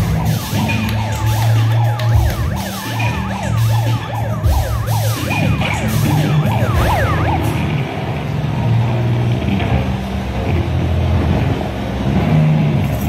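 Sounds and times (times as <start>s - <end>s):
yelping siren: 0.0s - 8.7s.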